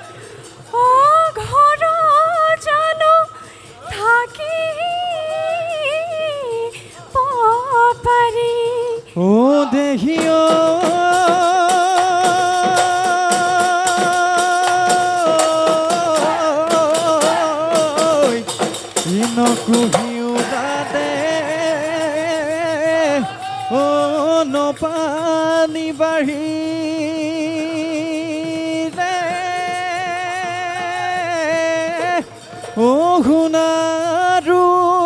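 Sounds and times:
woman singing wavering melody: 0:00.6 - 0:18.4
drum beats: 0:09.2 - 0:35.0.

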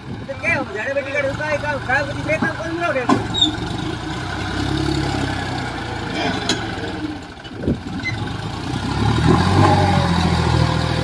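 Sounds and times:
tractor diesel engine labouring: 0:00.0 - 0:11.0.

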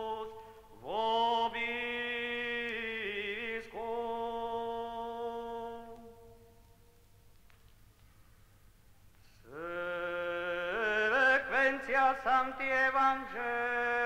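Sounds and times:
man singing plainchant: 0:00.0 - 0:06.5, 0:09.5 - 0:14.0
faint recording hiss: 0:00.0 - 0:14.0.

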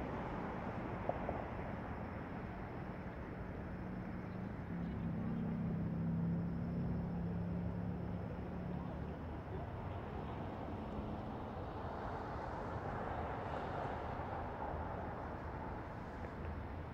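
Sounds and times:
distant traffic hum: 0:00.0 - 0:16.9.

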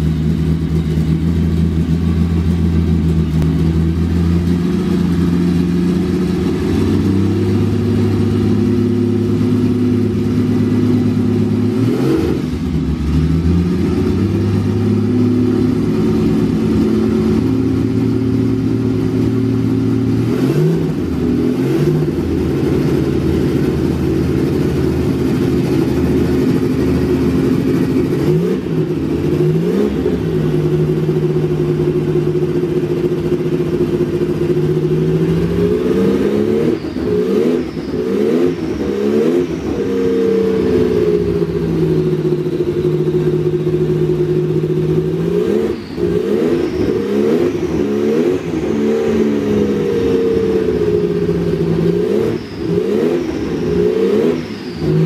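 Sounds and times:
race car engine idling and revving: 0:00.0 - 0:55.0.

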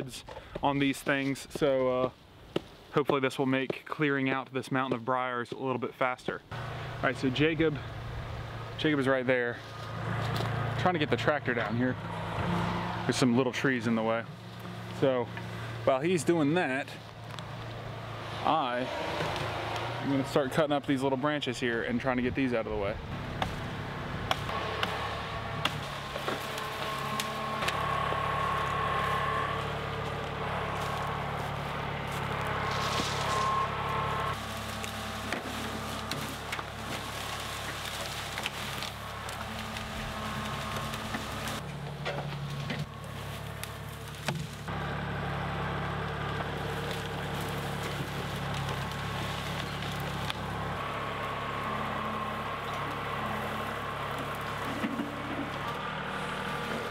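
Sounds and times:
tractor diesel engine running: 0:06.4 - 0:56.9
branches chopped and breaking: 0:23.3 - 0:44.7, 0:46.0 - 0:51.0.

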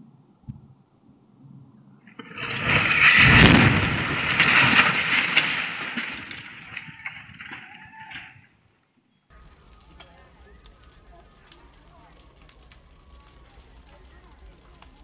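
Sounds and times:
house explosion blast rumbling: 0:02.2 - 0:07.4.

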